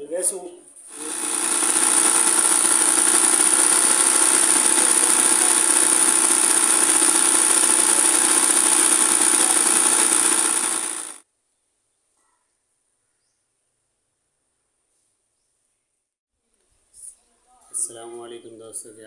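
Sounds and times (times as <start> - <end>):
sewing machine whining: 0.9 - 11.2.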